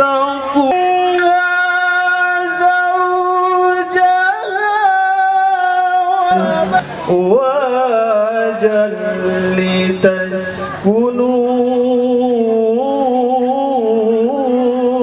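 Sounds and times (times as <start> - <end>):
man chanting into a microphone: 0.0 - 15.0.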